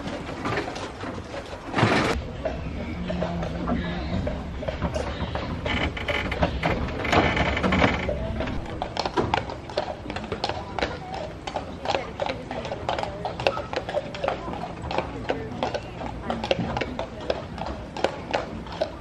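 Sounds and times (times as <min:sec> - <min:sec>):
horse hooves on pavement: 0:00.0 - 0:19.0
wooden wagon rattling: 0:00.0 - 0:19.0.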